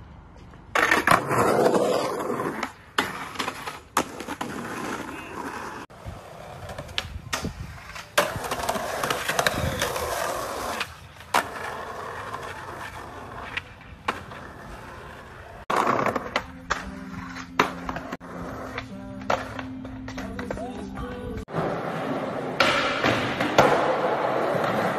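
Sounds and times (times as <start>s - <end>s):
skateboard wheels rolling on concrete: 0.0s - 24.9s
skateboard clacks: 22.5s - 24.9s.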